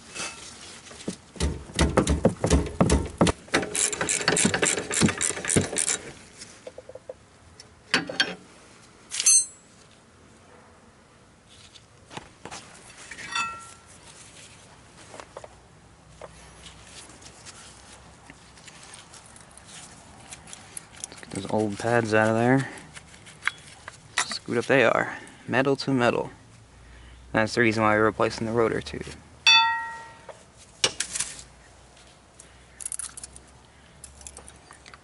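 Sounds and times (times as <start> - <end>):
ratchet wrench clicking: 3.7 - 6.0
metal clinks: 9.2 - 9.7, 13.2 - 13.9, 29.5 - 30.4.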